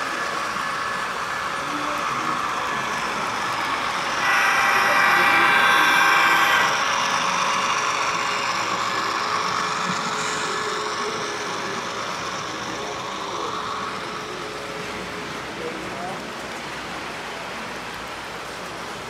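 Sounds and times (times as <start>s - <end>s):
model train running: 0.0s - 19.0s
held pitched tone: 1.7s - 14.1s.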